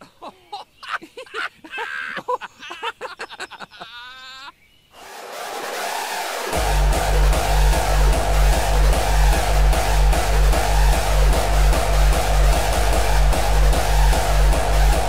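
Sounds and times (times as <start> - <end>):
noise hiss riser: 4.9 - 15.0
electronic dance music: 5.0 - 15.0.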